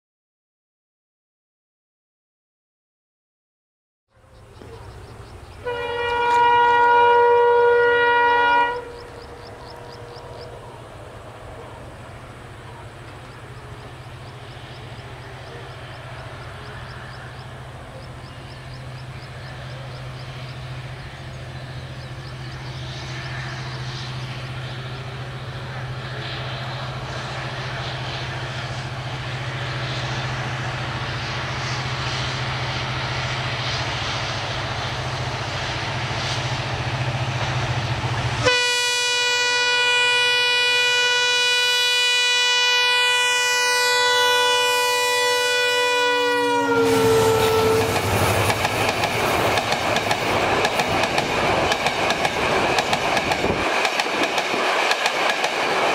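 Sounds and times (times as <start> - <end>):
train rumble: 4.1 - 55.9
diesel engine droning: 4.2 - 39.0
locomotive horn blast: 5.6 - 11.0, 38.4 - 48.5.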